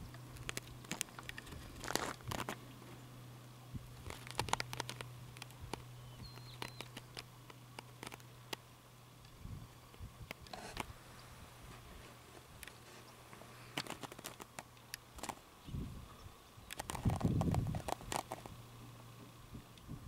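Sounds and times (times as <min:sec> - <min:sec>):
steady low hum: 0:00.0 - 0:20.0
camera handling clicks and rustles: 0:04.0 - 0:08.6, 0:13.7 - 0:15.4.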